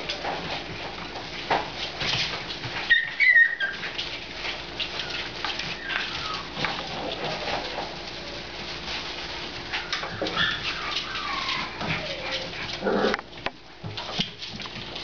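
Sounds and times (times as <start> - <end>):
wood shavings rustling: 0.0 - 15.0
puppy yip: 2.9 - 3.8
puppy whining squeals: 2.9 - 4.0, 4.9 - 7.6, 9.7 - 12.7.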